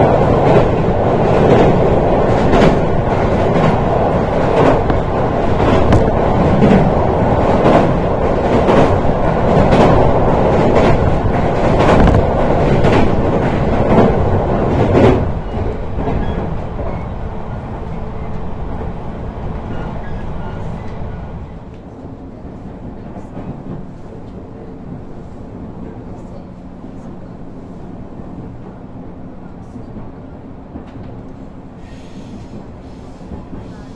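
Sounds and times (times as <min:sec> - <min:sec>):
wheel clack at rail joints: 0:00.0 - 0:17.1
train rumbling over a bridge: 0:00.0 - 0:33.9.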